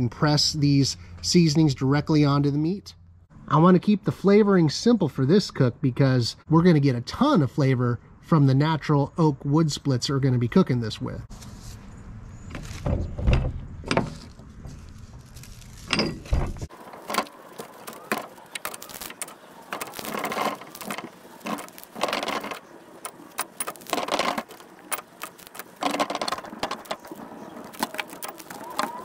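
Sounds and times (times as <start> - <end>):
patting and crinkling: 12.5 - 29.0.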